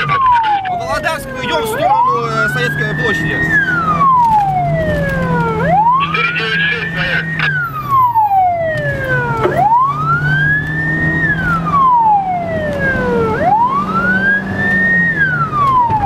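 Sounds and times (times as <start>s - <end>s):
police siren wailing: 0.0s - 16.0s.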